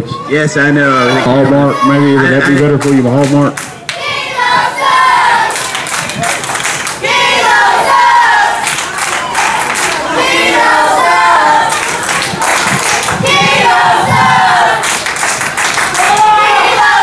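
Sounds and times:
crowd chanting: 3.9 - 17.0
hand claps: 5.5 - 7.0, 8.6 - 10.0, 11.7 - 13.2, 14.8 - 16.3.

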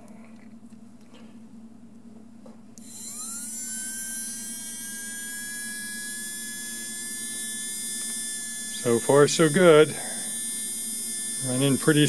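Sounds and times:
model train motor whine: 2.8 - 12.0.

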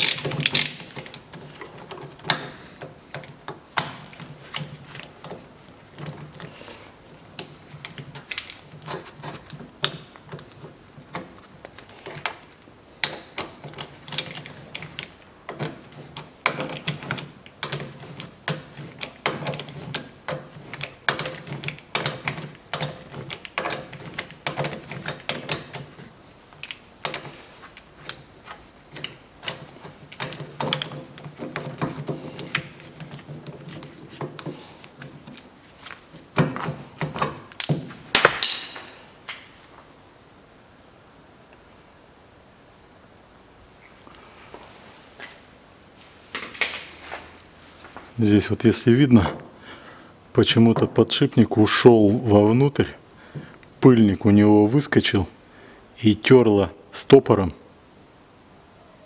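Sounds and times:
metallic clanks: 37.2 - 39.2.

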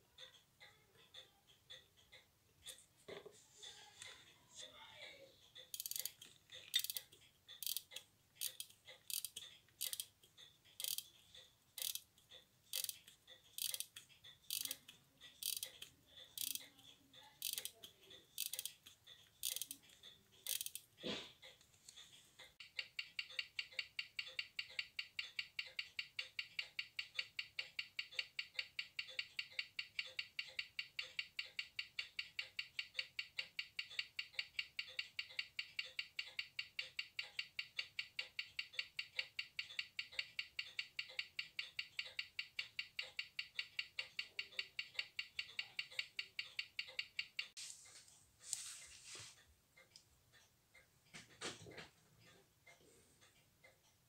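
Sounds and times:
watch ticking: 0.0 - 3.3, 4.0 - 54.0
watch winding ratchet clicking: 5.6 - 20.9, 22.5 - 47.6.

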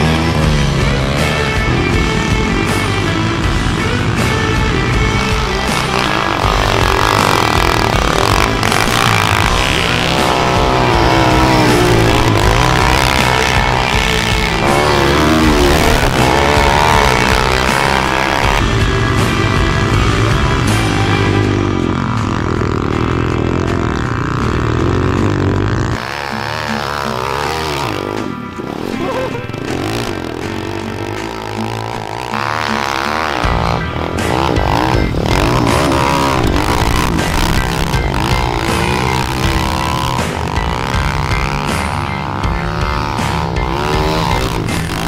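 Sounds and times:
background music: 0.0 - 45.0
pit bike engine revving: 0.0 - 45.0.

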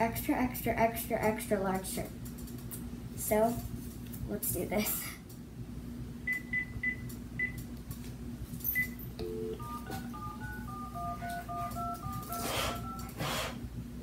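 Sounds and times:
phone key beeps: 8.8 - 13.1
dial tone: 9.2 - 13.1
touch-tone dialing tones: 9.2 - 13.2.

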